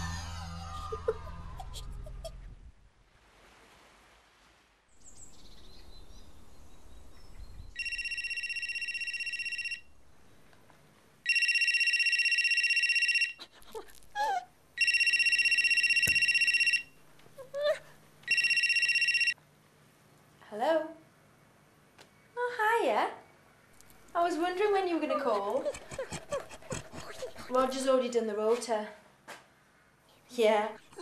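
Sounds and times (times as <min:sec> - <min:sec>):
electronic telephone ringing: 0:07.8 - 0:09.9, 0:11.2 - 0:13.4, 0:14.8 - 0:17.0, 0:18.2 - 0:19.4.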